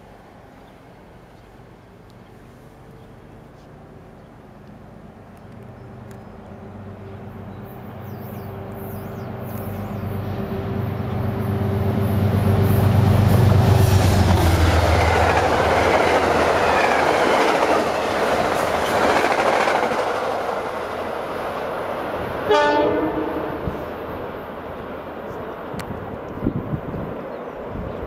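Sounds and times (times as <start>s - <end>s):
locomotive low drone: 0.0s - 28.0s
train wheels clattering on rail: 12.6s - 21.4s.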